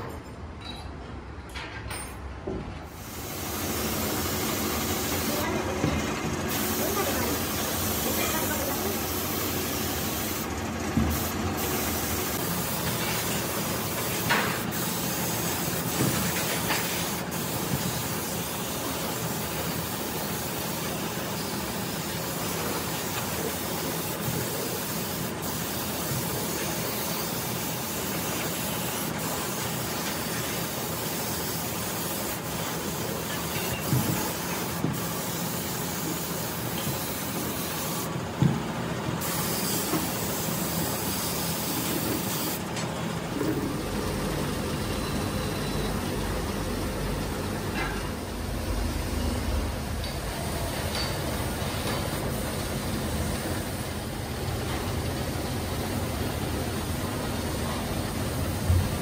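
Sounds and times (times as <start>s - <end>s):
paint spray gun hissing: 3.0s - 38.1s, 39.2s - 42.7s.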